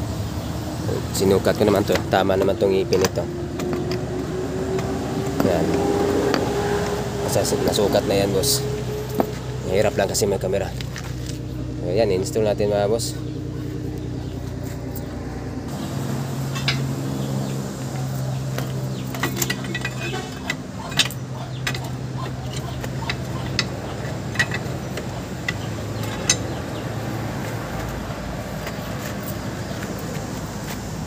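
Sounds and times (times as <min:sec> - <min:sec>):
metal clinks and knocks: 0:01.5 - 0:07.0, 0:16.4 - 0:27.8.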